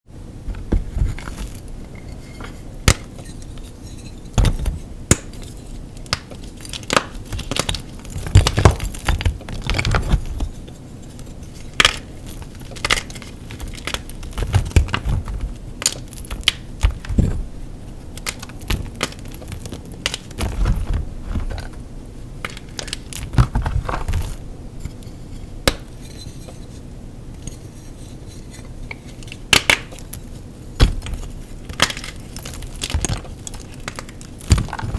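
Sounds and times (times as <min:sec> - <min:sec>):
chalk crunching and snapping: 0:05.1 - 0:17.2.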